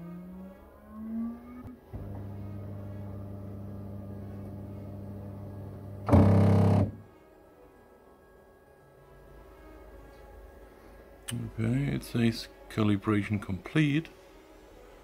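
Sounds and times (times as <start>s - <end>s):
printer rising tone: 1.0s - 7.0s
printer hum: 1.8s - 7.0s.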